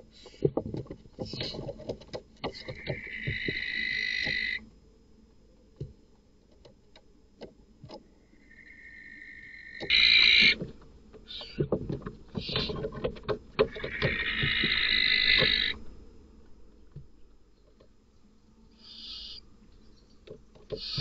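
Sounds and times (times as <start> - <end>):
owls hissing and screeching: 2.8 - 4.6, 8.4 - 10.6, 13.8 - 15.8.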